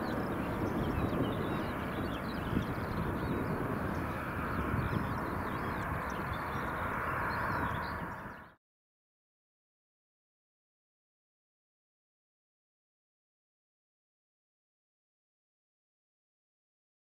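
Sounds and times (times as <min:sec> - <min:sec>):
distant jet engine rumble: 0:00.0 - 0:08.6
small birds chirping: 0:00.0 - 0:08.6.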